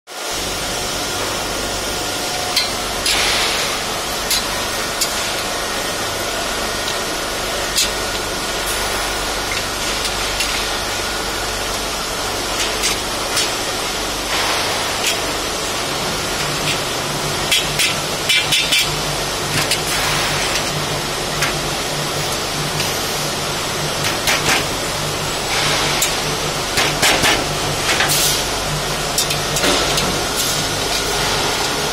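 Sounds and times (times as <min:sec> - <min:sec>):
steady background noise: 0:00.1 - 0:31.9
metal shelving clanks: 0:12.4 - 0:23.0, 0:24.0 - 0:31.9.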